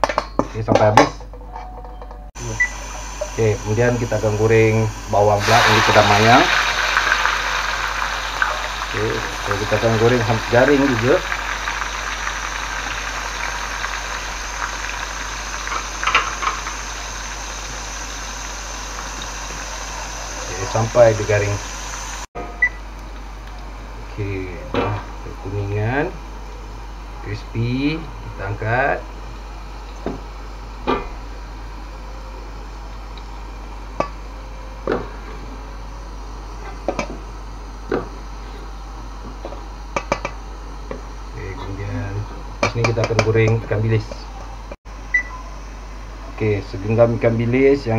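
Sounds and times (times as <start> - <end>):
onions sizzling in hot oil: 2.4 - 22.3.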